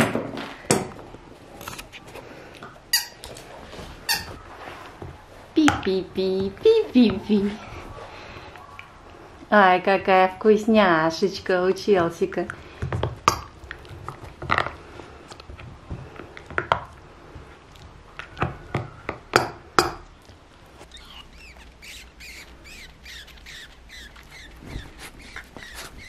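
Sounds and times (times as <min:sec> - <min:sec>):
squeaky toy squeaks: 0:02.9 - 0:03.2, 0:04.1 - 0:04.4, 0:20.8 - 0:26.0
dog chewing rubber ball: 0:20.3 - 0:26.0.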